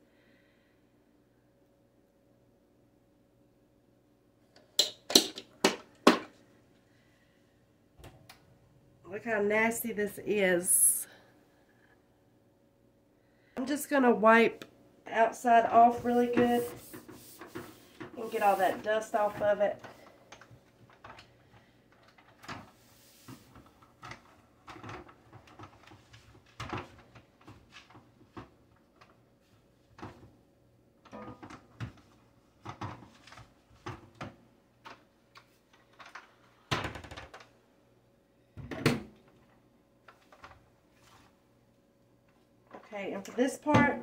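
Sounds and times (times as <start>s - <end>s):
plastic knocks and rubbing: 15.8s - 19.6s.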